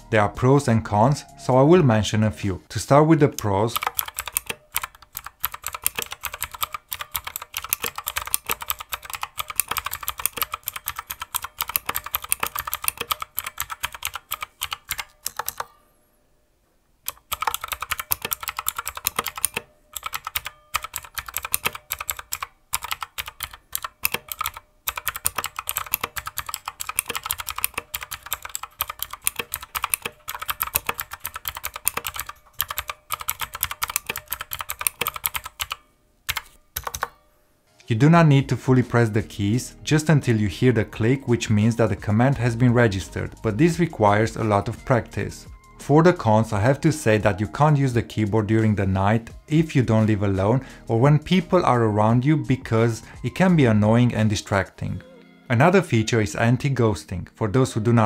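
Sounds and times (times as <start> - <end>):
clicky mechanical keyboard typing: 3.3 - 15.8, 17.0 - 37.2.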